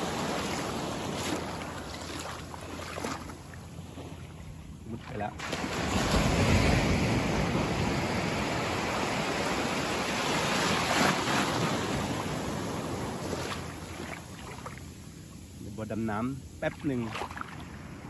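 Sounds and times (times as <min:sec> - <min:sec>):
small waves breaking: 0:00.0 - 0:18.0.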